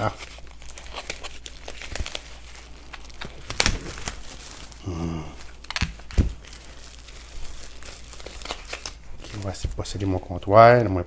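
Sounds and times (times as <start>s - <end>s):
plastic crinkling: 0.0s - 11.0s
man humming: 4.8s - 5.5s.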